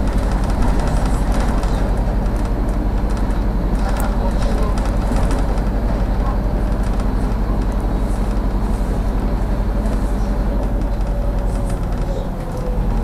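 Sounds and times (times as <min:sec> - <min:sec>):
bus diesel engine droning: 0:00.0 - 0:13.0.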